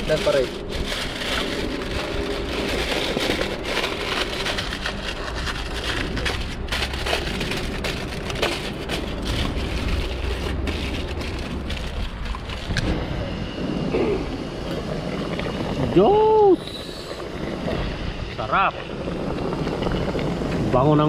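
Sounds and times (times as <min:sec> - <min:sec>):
aluminium foil crinkling: 0:00.0 - 0:12.9
plastic bag rustling: 0:00.0 - 0:13.0
steady low rumble: 0:00.0 - 0:21.0.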